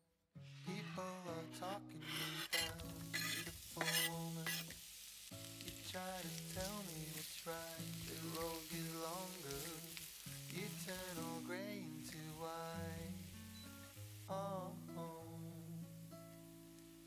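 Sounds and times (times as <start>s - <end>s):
background music: 0.5s - 4.7s, 5.3s - 17.0s
spatula scraping a pan: 0.7s - 4.9s
onions sizzling in oil: 2.0s - 17.0s.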